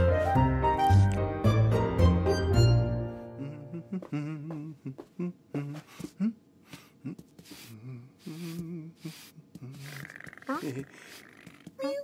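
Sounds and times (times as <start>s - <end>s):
person humming: 3.2s - 11.8s
brush swishing through fur: 7.4s - 12.0s.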